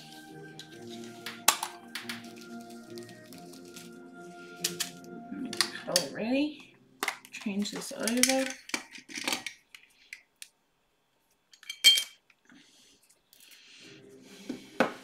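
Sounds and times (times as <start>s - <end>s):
plastic pieces clattering down: 7.0s - 9.8s.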